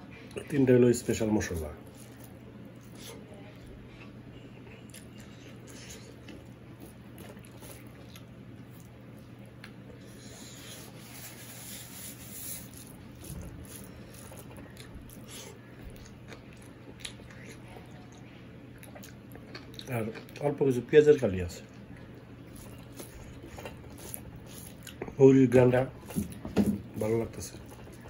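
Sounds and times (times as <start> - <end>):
steady low hum: 0.0 - 28.0
fingers squishing rice: 10.5 - 15.6.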